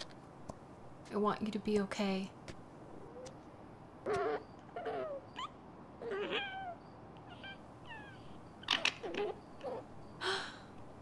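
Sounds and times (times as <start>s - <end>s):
fox whimpering: 4.0s - 10.0s.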